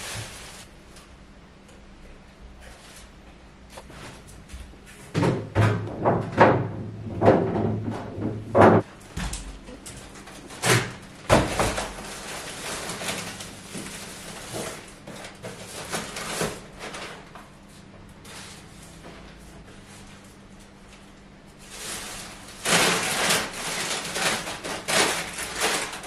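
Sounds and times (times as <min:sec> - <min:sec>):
plastic bags rustling: 0:00.0 - 0:00.7, 0:09.5 - 0:17.3, 0:21.6 - 0:26.0
items knocking and thudding: 0:03.8 - 0:17.0.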